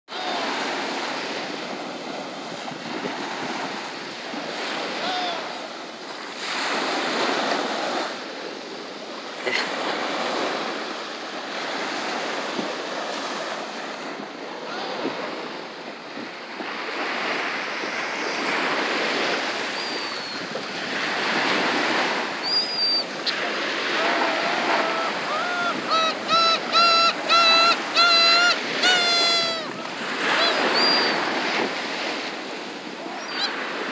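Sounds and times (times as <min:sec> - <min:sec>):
surf breaking on beach: 0:09.2 - 0:33.9.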